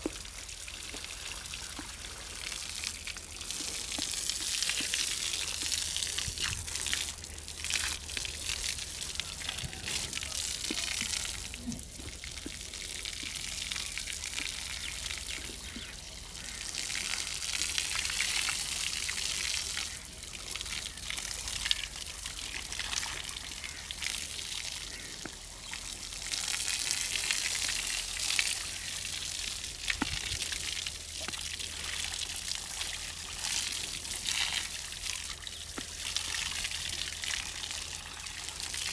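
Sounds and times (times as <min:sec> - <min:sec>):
hose water spraying on hide: 0:00.2 - 0:16.5.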